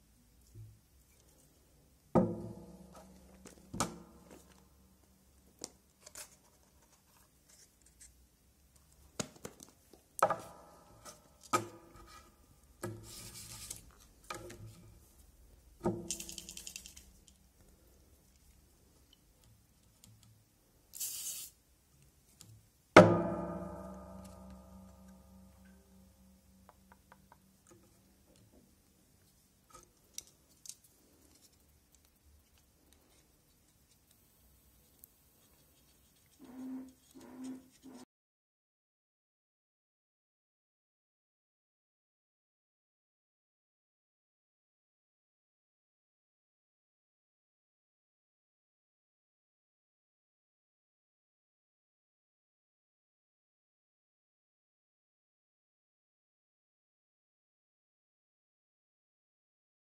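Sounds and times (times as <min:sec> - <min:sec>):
small objects clicking and tapping: 0:15.9 - 0:17.8.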